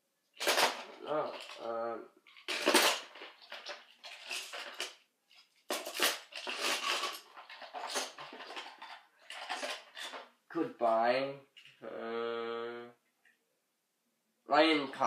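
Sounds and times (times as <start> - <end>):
toy trains clattering: 0.4 - 10.3.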